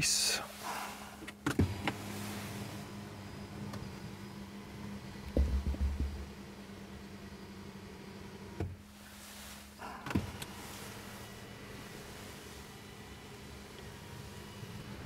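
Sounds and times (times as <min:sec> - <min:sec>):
sunroof motor humming: 0:00.0 - 0:15.0
dull low thumps: 0:05.3 - 0:06.3
short rustle: 0:08.9 - 0:12.6.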